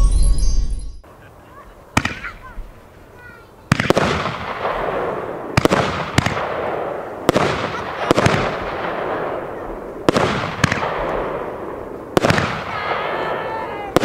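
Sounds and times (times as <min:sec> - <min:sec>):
firework battery bangs: 0:02.0 - 0:02.5, 0:03.7 - 0:14.0.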